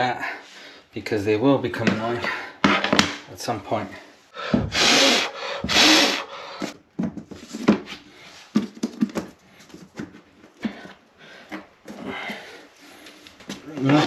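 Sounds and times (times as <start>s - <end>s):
floor planks scraping: 13.0s - 14.0s.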